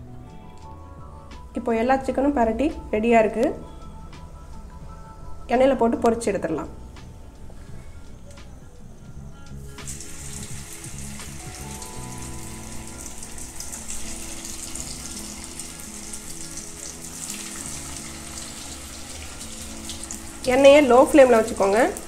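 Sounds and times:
oil sizzling and bubbling: 0:09.6 - 0:22.0.

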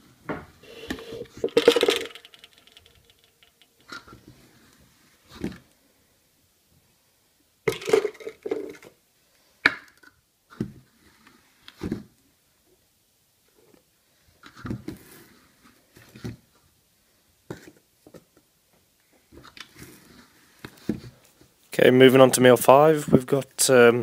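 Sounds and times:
plastic containers knocking and clattering: 0:00.2 - 0:04.3, 0:07.6 - 0:09.0.

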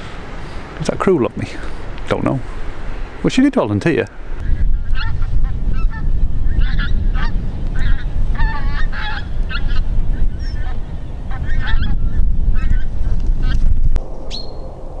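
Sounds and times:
geese honking in flight: 0:04.5 - 0:13.6
low rumble: 0:09.2 - 0:15.0.

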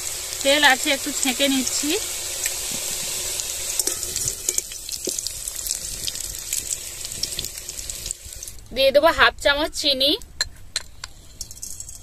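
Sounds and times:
hot oil sizzling: 0:00.0 - 0:08.9.

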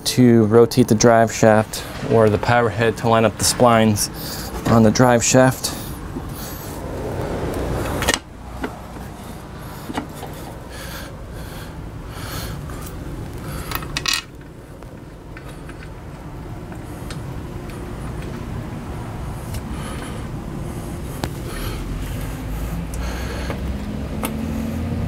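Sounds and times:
steady low hum: 0:00.0 - 0:25.0
outboard motor parts scraping: 0:01.4 - 0:11.6.

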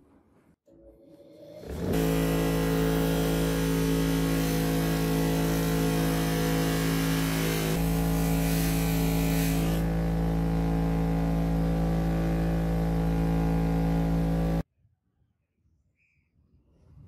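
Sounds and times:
bench grinder motor humming: 0:01.6 - 0:14.6.

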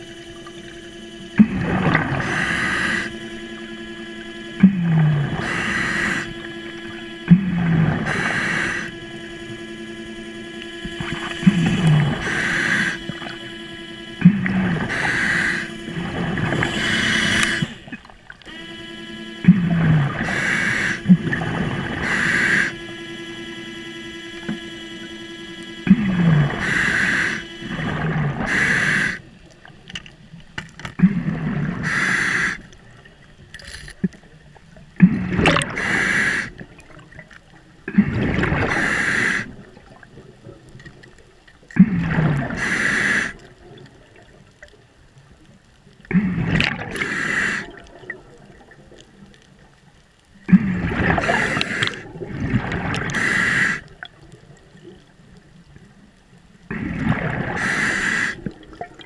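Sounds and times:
regulator hissing inhalations: 0:02.2 - 0:03.2, 0:05.4 - 0:06.8, 0:08.0 - 0:09.0, 0:11.6 - 0:13.3, 0:14.7 - 0:15.8, 0:16.4 - 0:17.9, 0:20.2 - 0:21.2, 0:21.9 - 0:22.9, 0:26.2 - 0:29.3, 0:31.8 - 0:32.7, 0:35.7 - 0:36.6, 0:38.7 - 0:39.5, 0:42.5 - 0:43.5, 0:47.0 - 0:47.8, 0:51.2 - 0:52.1, 0:53.1 - 0:54.0, 0:57.6 - 0:58.6
bubbly exhalations: 0:35.0 - 0:35.9, 0:50.5 - 0:53.2, 0:56.7 - 0:57.7.

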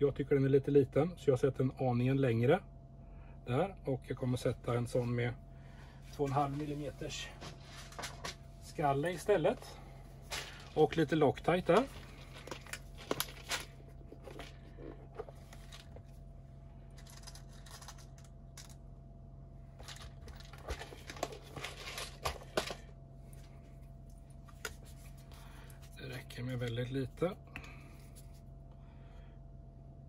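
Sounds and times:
faint steady hum: 0:00.0 - 0:30.0
hands handling small screws: 0:16.9 - 0:18.8.

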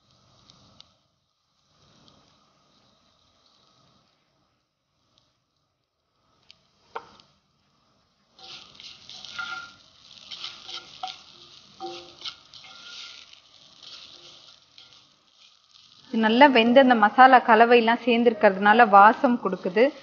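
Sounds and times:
food sizzling: 0:00.0 - 0:20.0
spatula scraping a skillet: 0:08.3 - 0:16.2
spatula clicking on pan: 0:08.4 - 0:15.9.

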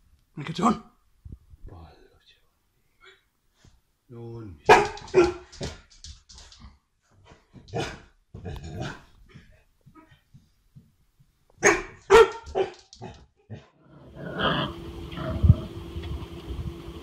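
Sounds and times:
dog barking: 0:04.7 - 0:05.7, 0:07.7 - 0:08.1, 0:11.6 - 0:13.2.

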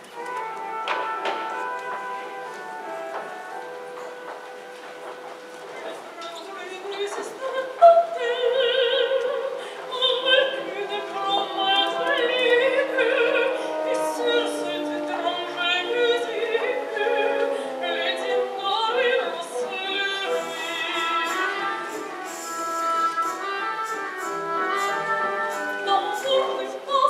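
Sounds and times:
instrumental accompaniment: 0:00.0 - 0:27.0
operatic singing: 0:06.2 - 0:27.0.

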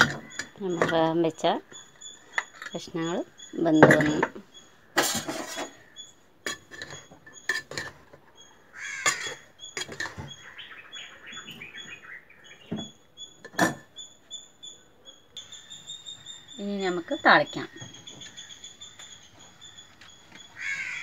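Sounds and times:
metal spoon clinking on pot: 0:06.4 - 0:08.0
crow cawing: 0:08.6 - 0:09.5, 0:20.5 - 0:21.0.

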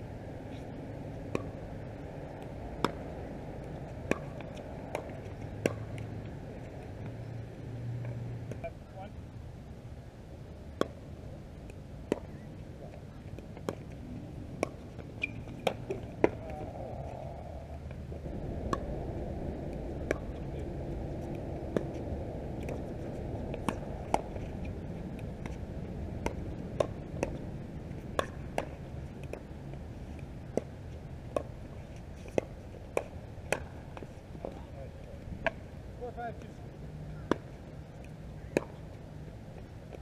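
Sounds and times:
ball bouncing on hard court: 0:04.0 - 0:06.1, 0:14.6 - 0:16.7, 0:19.7 - 0:22.0, 0:22.6 - 0:24.5, 0:26.2 - 0:27.4, 0:28.2 - 0:29.4
low rumble: 0:16.0 - 0:27.8.

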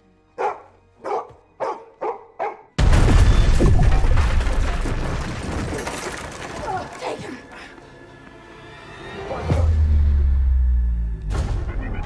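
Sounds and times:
film score music: 0:00.0 - 0:02.9, 0:06.6 - 0:12.0
dog barking: 0:00.4 - 0:02.8
explosion blast and crash: 0:02.8 - 0:06.3
debris rumbling: 0:02.8 - 0:07.2.

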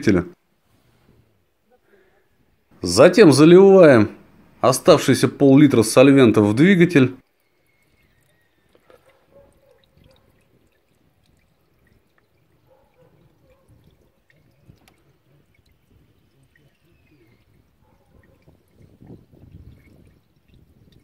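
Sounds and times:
liquid trickle and splash: 0:07.2 - 0:21.0.

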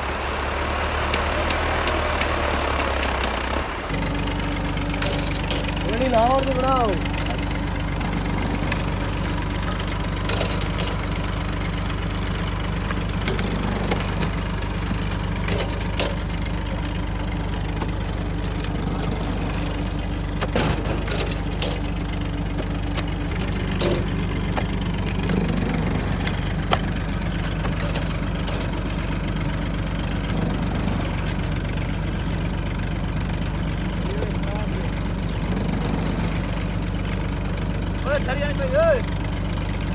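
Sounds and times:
tractor diesel engine running: 0:00.0 - 0:39.9
short high squeak: 0:07.9 - 0:08.7, 0:13.3 - 0:13.9, 0:18.6 - 0:19.4, 0:25.2 - 0:26.0, 0:30.3 - 0:31.1, 0:35.5 - 0:36.3.

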